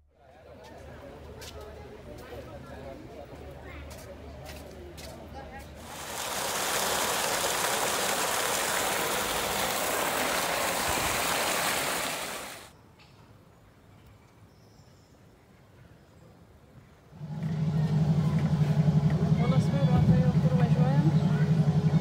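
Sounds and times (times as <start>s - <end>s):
water pouring into basin: 5.8s - 12.7s.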